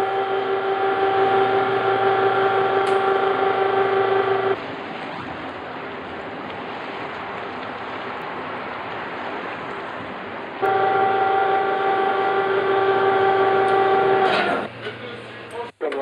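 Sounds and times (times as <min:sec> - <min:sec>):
winch motor whining: 0:00.0 - 0:04.6, 0:10.6 - 0:14.8.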